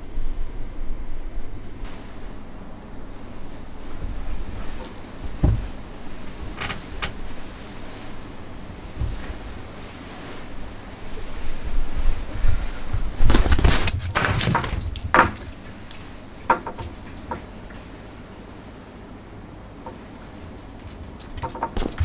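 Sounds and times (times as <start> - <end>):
bedding rustling: 1.4 - 18.8, 19.7 - 22.0
soft thumps: 4.0 - 7.6, 8.2 - 9.8.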